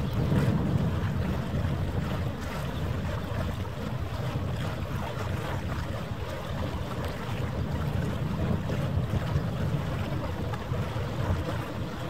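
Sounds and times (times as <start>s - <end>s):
steady low rumble: 0.0s - 4.9s
wind buffeting microphone: 0.0s - 12.0s.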